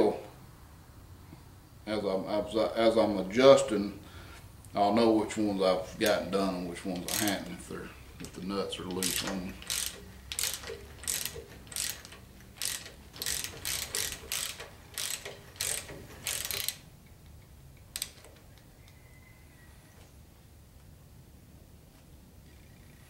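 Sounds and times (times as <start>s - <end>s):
socket ratchet clicking: 7.0s - 7.5s, 8.9s - 18.7s.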